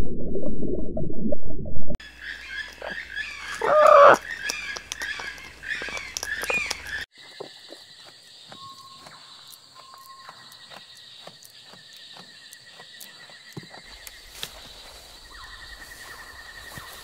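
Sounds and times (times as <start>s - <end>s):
low rumble: 0.0s - 2.0s
high-pitched insect chorus: 2.2s - 17.0s
sharp clicks: 3.5s - 7.1s.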